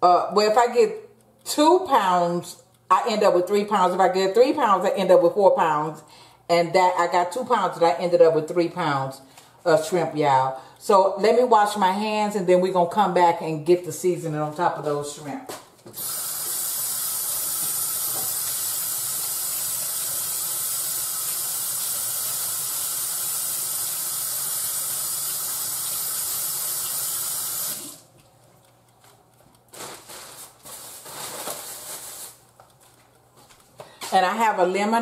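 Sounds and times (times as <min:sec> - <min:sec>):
faucet running into sink: 0:16.0 - 0:28.0.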